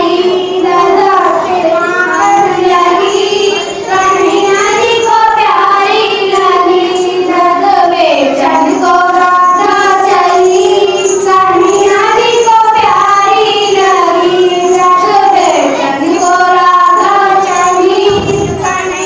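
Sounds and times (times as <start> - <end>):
high singing voice with music: 0.0 - 19.0.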